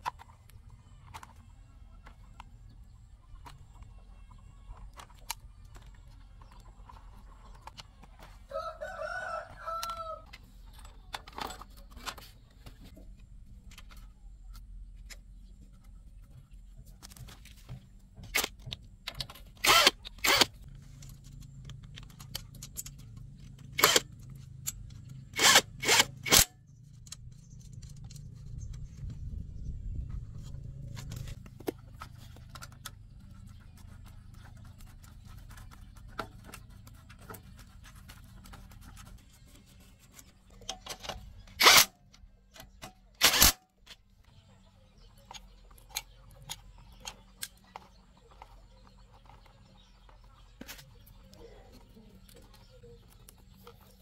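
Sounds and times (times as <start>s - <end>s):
rooster crowing: 8.5s - 10.3s.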